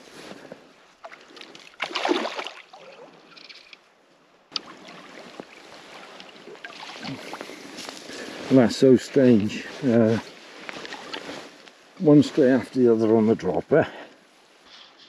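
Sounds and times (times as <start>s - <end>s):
fish splashing and thrashing: 1.0s - 3.8s, 4.6s - 7.7s, 10.7s - 11.3s
water sloshing: 1.0s - 3.8s, 4.5s - 8.5s, 10.3s - 11.6s.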